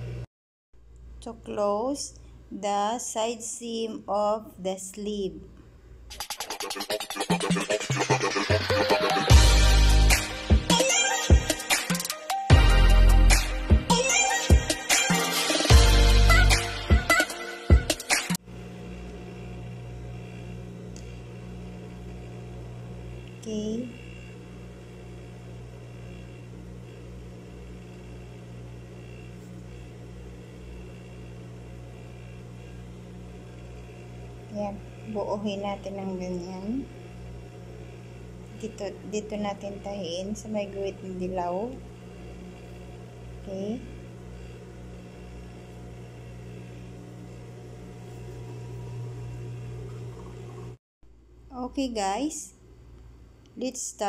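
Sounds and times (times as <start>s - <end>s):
low electrical hum: 0.8s - 6.1s, 18.5s - 54.0s.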